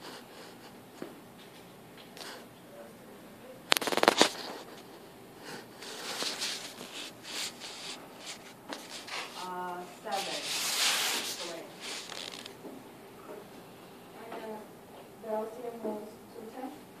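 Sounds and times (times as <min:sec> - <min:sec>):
microphone handling clicks: 0:03.7 - 0:04.6
microphone scuffing and rustling: 0:05.8 - 0:12.6.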